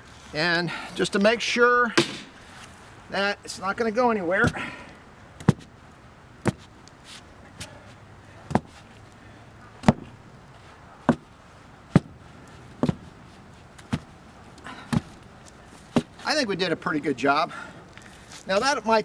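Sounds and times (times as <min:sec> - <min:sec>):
sledgehammer thuds on dirt: 0:02.0 - 0:02.4, 0:06.4 - 0:06.6, 0:09.8 - 0:10.1, 0:11.9 - 0:12.2.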